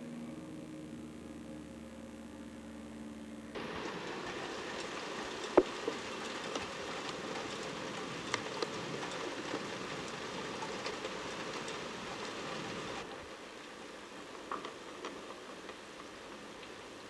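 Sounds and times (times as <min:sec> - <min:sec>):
steady rain hiss: 0:03.5 - 0:17.0.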